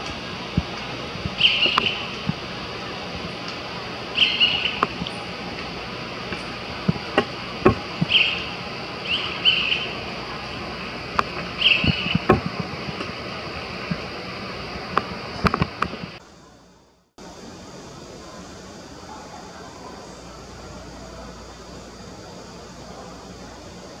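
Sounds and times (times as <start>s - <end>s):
outdoor background noise: 0.0s - 24.0s
high-pitched chirps: 1.4s - 2.1s, 11.6s - 12.3s.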